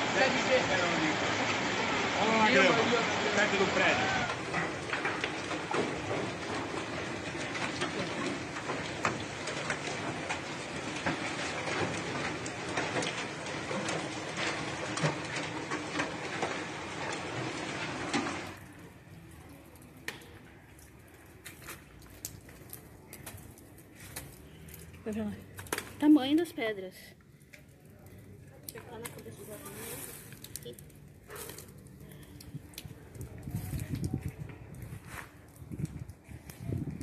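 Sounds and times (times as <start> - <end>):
rain and hail hissing: 0.0 - 27.1, 27.7 - 37.0
hailstones ticking on surfaces: 0.0 - 37.0.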